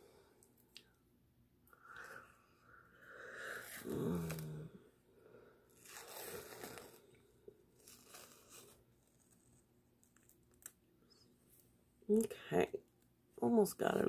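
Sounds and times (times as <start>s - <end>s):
peel-off mask tearing: 3.6s - 4.7s, 5.8s - 7.2s
person strained vocal noise: 3.8s - 4.7s.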